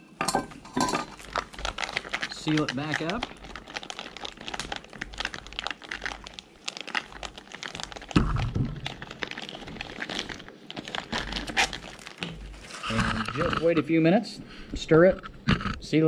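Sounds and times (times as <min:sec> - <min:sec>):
foil pouch crinkling: 0:00.9 - 0:13.8.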